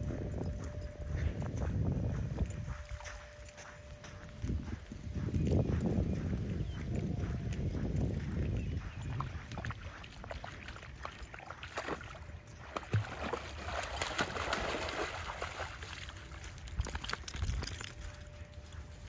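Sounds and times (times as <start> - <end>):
puppy splashing in water: 9.5 - 17.4.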